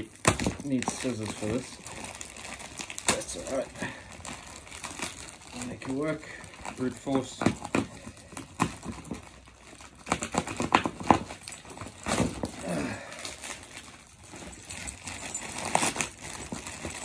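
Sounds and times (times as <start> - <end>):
packing tape and plastic tearing: 0.0 - 17.0.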